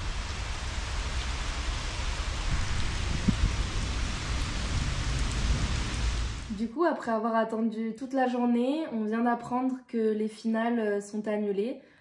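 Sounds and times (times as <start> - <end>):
low rumble: 0.0 - 6.5
rain in puddles on concrete: 0.0 - 6.6
rain on wet grass: 0.0 - 6.6.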